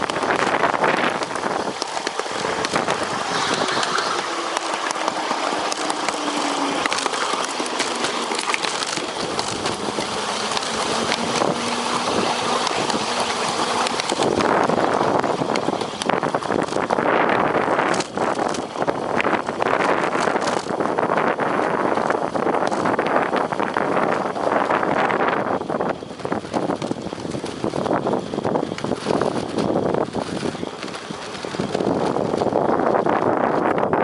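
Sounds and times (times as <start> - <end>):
scattered clicks and knocks: 0.0 - 17.2
motor running: 0.0 - 20.8
wheels rushing on rail: 0.0 - 34.0.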